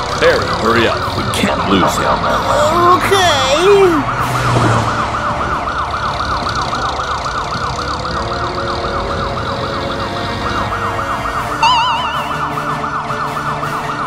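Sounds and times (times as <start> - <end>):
police siren yelping: 0.0 - 14.0.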